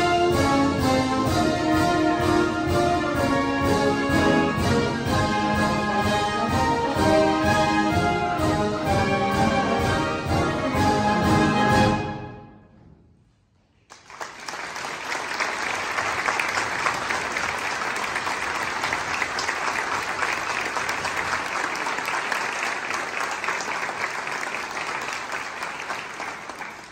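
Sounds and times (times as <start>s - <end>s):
audience applauding: 13.9s - 26.9s.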